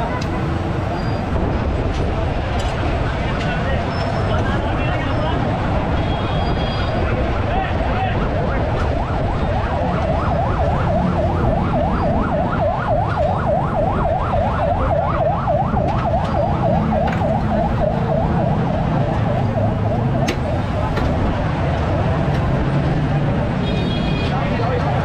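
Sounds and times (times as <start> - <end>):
low street noise rumble: 0.0 - 25.0
electronic siren yelping: 8.2 - 22.3.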